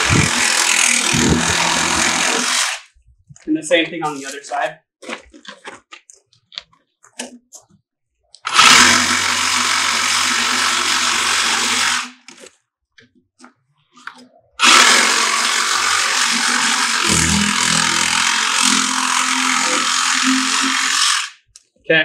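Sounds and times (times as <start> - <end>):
power saw cutting plastic pipe: 0.0 - 2.9, 8.4 - 12.4, 14.6 - 21.4.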